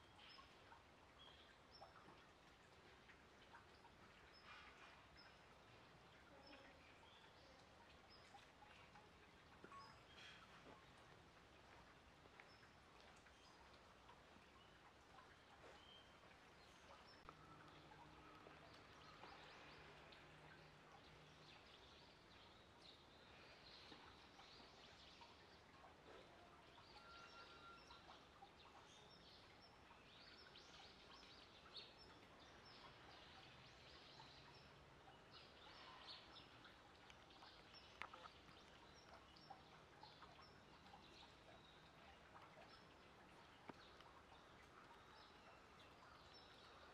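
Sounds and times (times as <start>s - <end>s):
faint high chirps: 9.6s - 10.8s, 26.1s - 28.2s.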